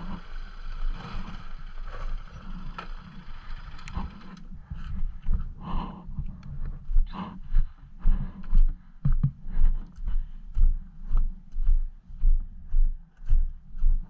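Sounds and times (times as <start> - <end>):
knocking on microphone: 9.0 - 9.4.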